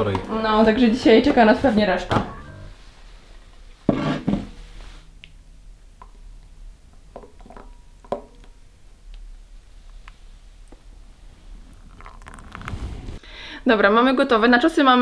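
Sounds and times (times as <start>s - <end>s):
metal jug and bowl clinking: 2.1s - 2.8s, 7.1s - 8.6s.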